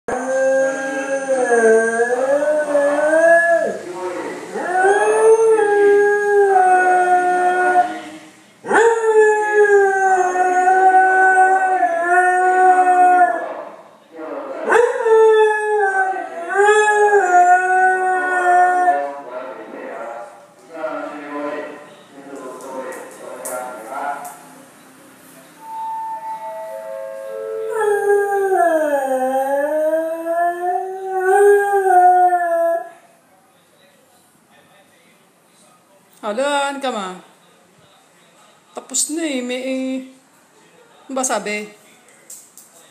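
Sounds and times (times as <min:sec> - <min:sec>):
dog howling: 0:00.1 - 0:03.8, 0:04.5 - 0:08.0, 0:08.7 - 0:13.6, 0:14.6 - 0:19.2, 0:25.6 - 0:32.9.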